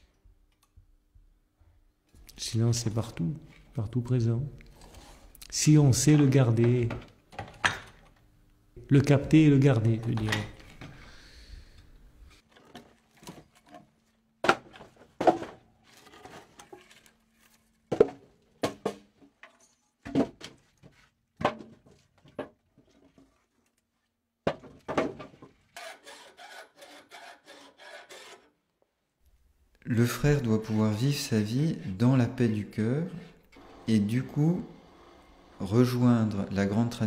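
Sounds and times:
file rasping on metal: 25.8 - 28.6.

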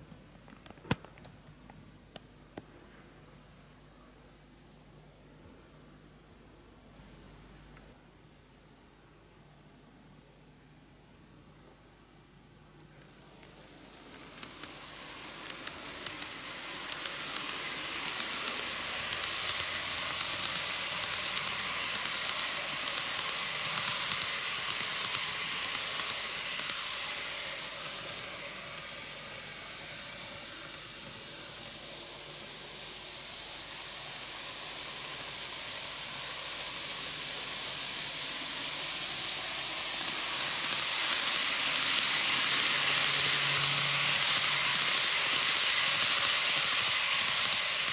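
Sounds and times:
model train wheels rattling on rails: 13.0 - 47.9.

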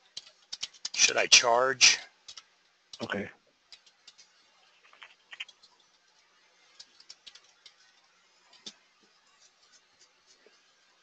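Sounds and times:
computer keyboard keystrokes: 0.1 - 1.0, 3.7 - 4.3, 6.7 - 7.8.

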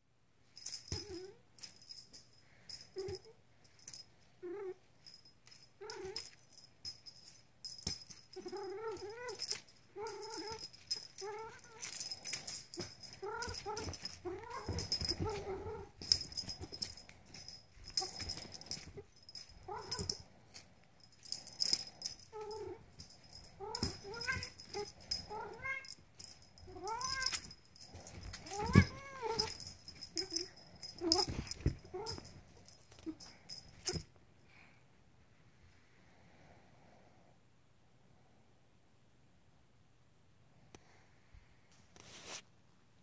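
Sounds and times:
toy jingling: 0.5 - 34.1
rustling on bedding: 7.1 - 34.0.

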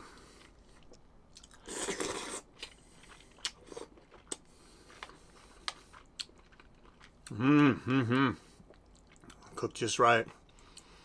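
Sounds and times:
chewing with wet mouth clicks: 0.4 - 7.3, 8.6 - 9.6.

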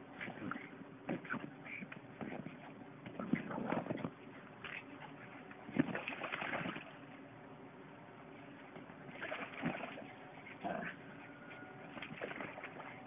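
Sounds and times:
puppies splashing in water: 5.7 - 7.0, 9.1 - 10.7, 11.9 - 13.0.

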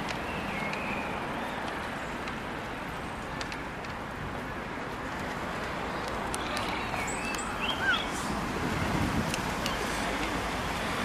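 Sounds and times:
faint high chirp: 7.0 - 8.2.

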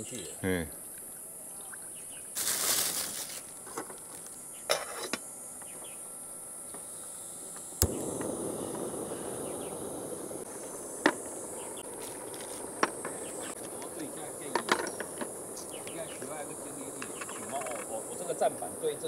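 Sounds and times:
insects buzzing: 0.0 - 19.0
gas burner hissing: 6.8 - 19.0
gas stove igniter clicking: 7.6 - 11.8.

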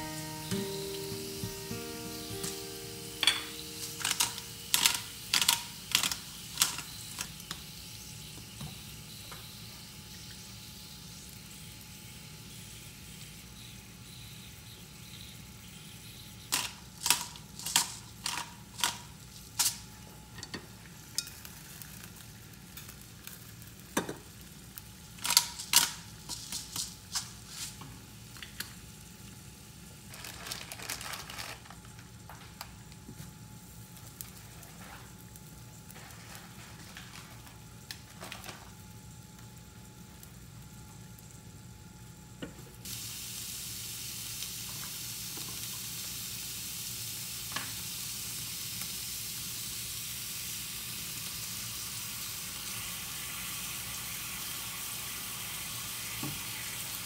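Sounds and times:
pepper mill grinding: 0.0 - 7.8, 16.4 - 20.5, 25.2 - 27.7
steak sizzling on grill pan: 0.0 - 20.0, 42.8 - 57.0.

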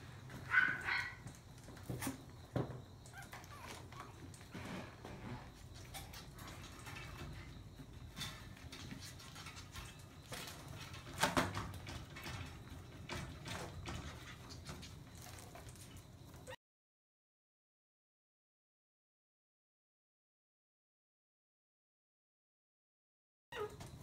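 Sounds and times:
puppies playing with foil balloon: 0.0 - 16.5.

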